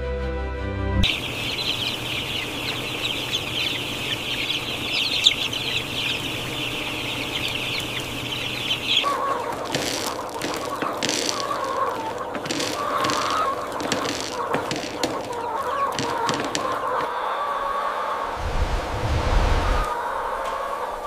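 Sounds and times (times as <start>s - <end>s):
music: 0.0s - 2.2s
chicks peeping: 1.0s - 18.4s, 19.7s - 21.0s
low-pitched chicken calls: 1.0s - 21.0s.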